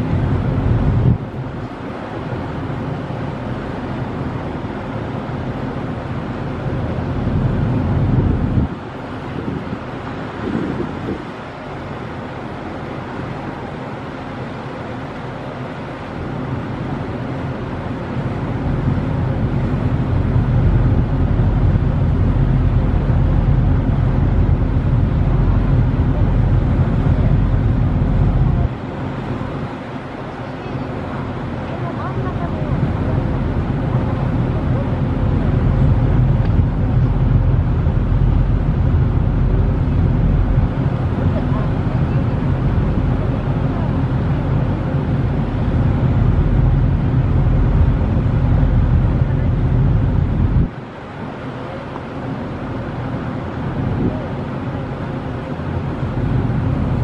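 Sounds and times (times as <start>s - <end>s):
ferry engine rumble: 0.0s - 57.0s
rushing water: 0.0s - 57.0s
wind: 0.0s - 57.0s.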